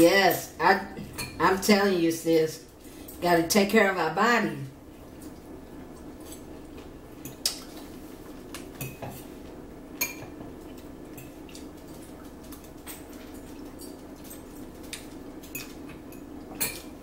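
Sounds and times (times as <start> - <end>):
forks clinking on ceramic bowls: 15.5 - 16.9.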